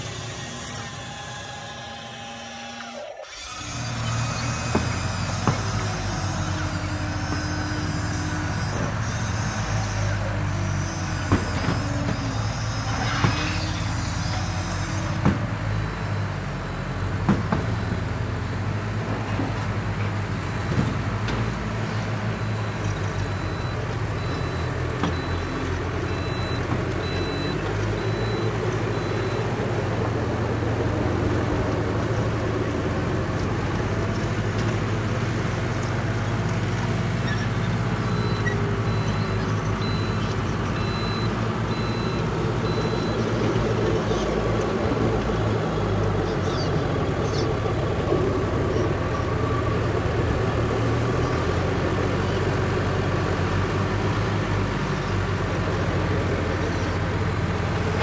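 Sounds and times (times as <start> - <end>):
low engine hum of toy machines: 0.0 - 58.0.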